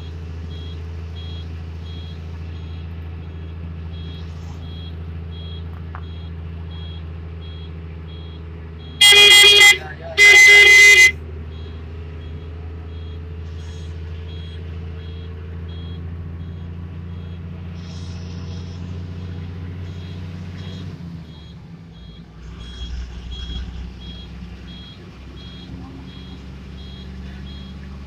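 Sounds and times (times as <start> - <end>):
bus engine running: 0.0 - 28.0
high electronic beeps: 9.0 - 11.1, 19.9 - 27.8
vehicle horn blast: 9.0 - 11.2.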